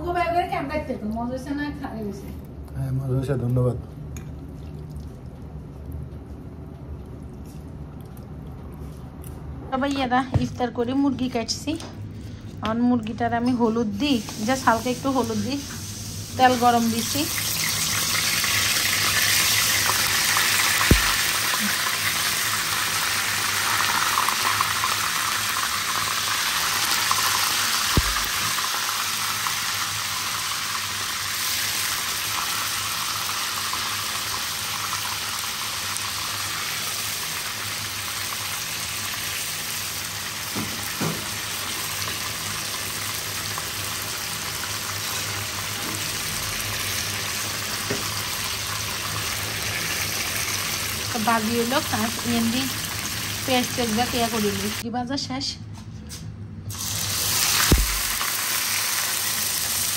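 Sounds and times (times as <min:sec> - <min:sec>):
chicken sizzling in frying pan: 0:13.8 - 0:54.8, 0:56.7 - 0:59.9.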